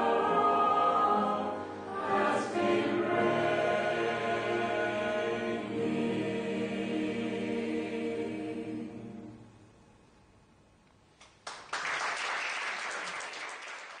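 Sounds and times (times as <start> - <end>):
choir holding chord: 0.0 - 9.8
audience applause: 11.4 - 14.0.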